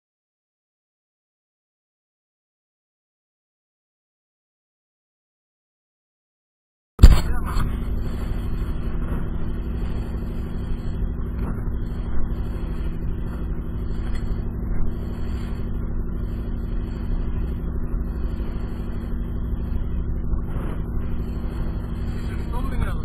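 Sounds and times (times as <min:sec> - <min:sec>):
boat hull thumping on swell: 0:07.0 - 0:17.6
boat engine running: 0:07.0 - 0:23.0
wind and water rushing: 0:07.0 - 0:23.0.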